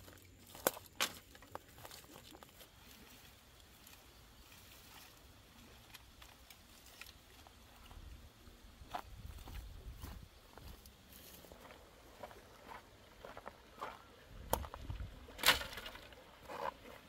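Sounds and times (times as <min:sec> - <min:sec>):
footsteps in dry grass: 0:00.0 - 0:17.0
twigs snapping: 0:00.5 - 0:02.6.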